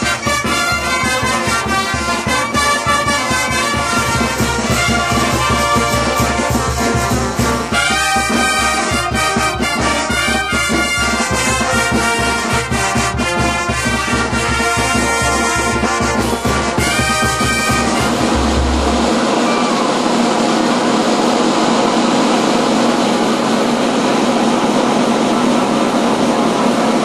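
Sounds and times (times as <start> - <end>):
trumpets and trombones playing: 0.0 - 21.2
bass drum beat: 16.2 - 19.8.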